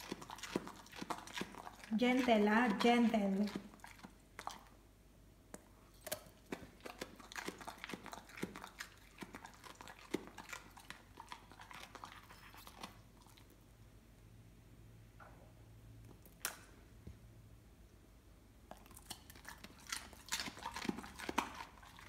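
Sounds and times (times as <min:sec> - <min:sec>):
dog crunching cabbage: 0:00.0 - 0:04.8, 0:05.9 - 0:13.6, 0:18.6 - 0:22.0.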